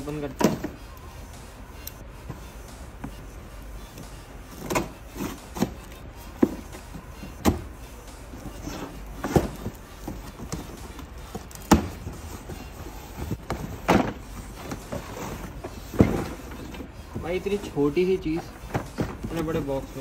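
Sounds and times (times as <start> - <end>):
cardboard box knocks and scrapes: 8.6 - 10.8, 13.2 - 16.6.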